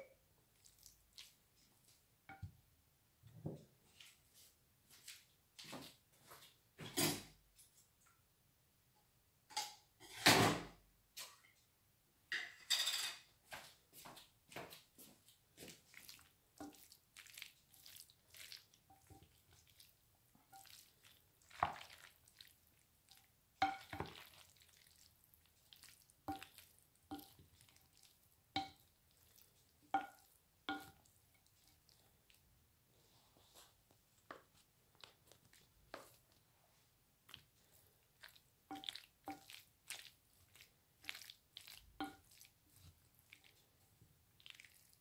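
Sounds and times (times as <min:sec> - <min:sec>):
wooden spoon stirring salad: 0:00.4 - 0:02.6, 0:13.5 - 0:45.0.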